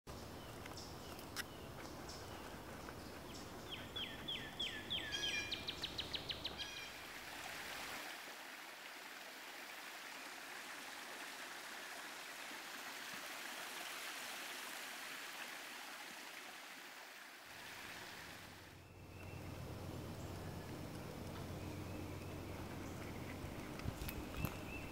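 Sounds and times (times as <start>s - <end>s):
bird calling: 0.3s - 7.0s
small waterfall rushing: 6.6s - 18.8s.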